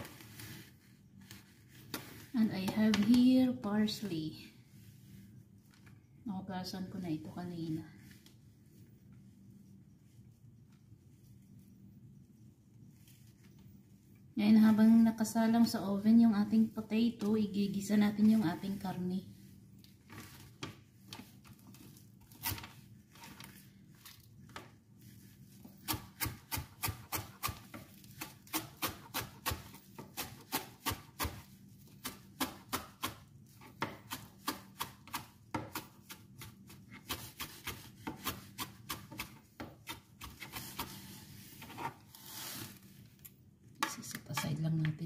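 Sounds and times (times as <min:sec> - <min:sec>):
knife chopping on cutting board: 0:25.8 - 0:33.2.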